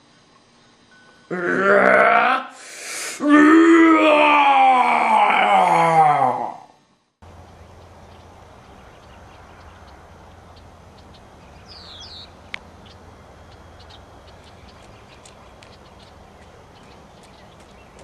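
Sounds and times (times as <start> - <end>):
steady low hum: 0.0 - 18.0
bird chirp: 7.3 - 18.0.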